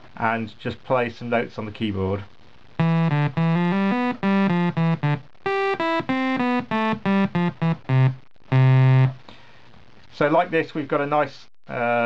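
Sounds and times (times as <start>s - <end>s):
synthesizer sawtooth notes: 2.8s - 9.2s.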